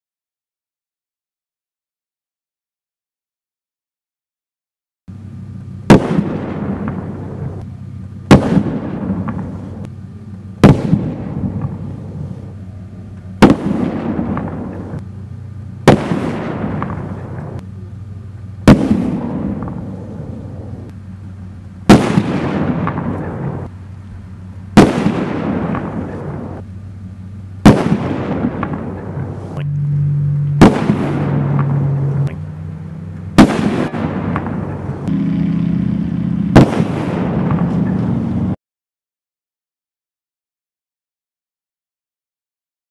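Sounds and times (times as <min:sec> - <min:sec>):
firework bangs: 0:05.8 - 0:09.9, 0:10.6 - 0:12.6, 0:13.3 - 0:15.0, 0:15.8 - 0:17.6, 0:18.6 - 0:20.9, 0:21.8 - 0:23.7, 0:24.7 - 0:26.6, 0:27.6 - 0:32.4, 0:33.3 - 0:38.5.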